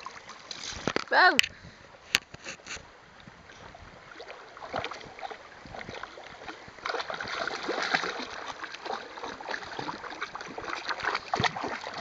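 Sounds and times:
dog splashing in stream water: 4.0 - 12.0.

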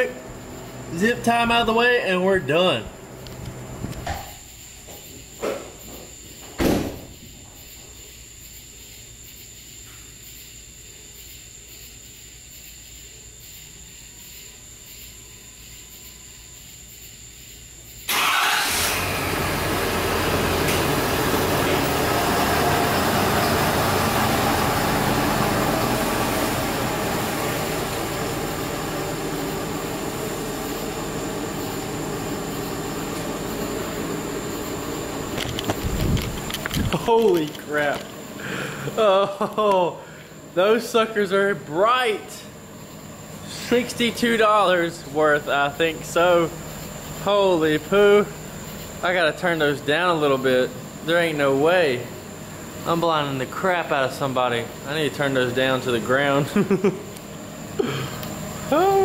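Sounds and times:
truck engine starting and running: 0.0 - 4.3, 18.1 - 59.0
insect trill: 0.0 - 18.6, 29.3 - 59.0.

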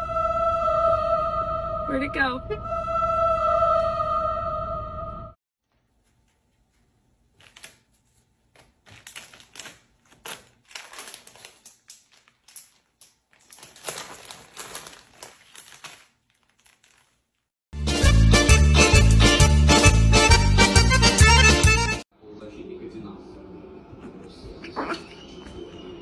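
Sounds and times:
food packaging crinkling: 5.7 - 17.5.

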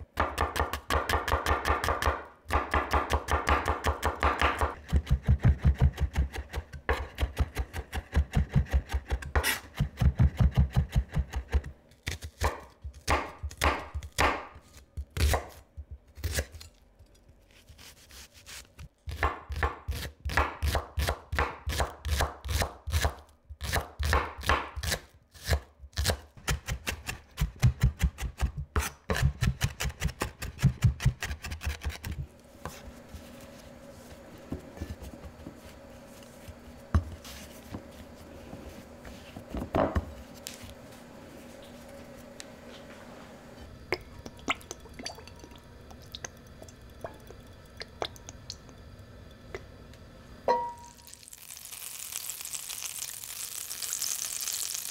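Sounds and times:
knife chopping on wooden board: 0.2 - 14.6.

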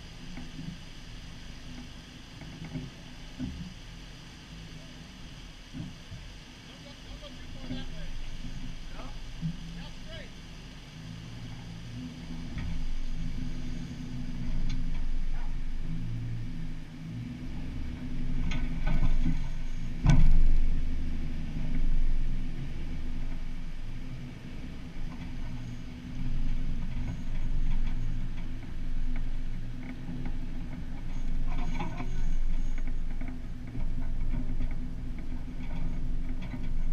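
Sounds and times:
off-road vehicle engine: 0.0 - 36.9.

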